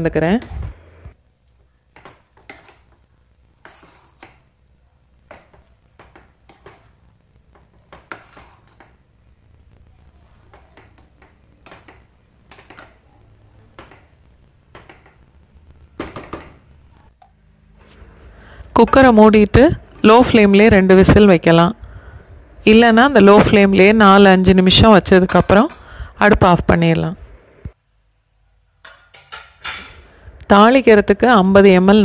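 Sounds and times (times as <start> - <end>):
metal ladle scraping pot: 3.6 - 4.4, 7.9 - 8.9.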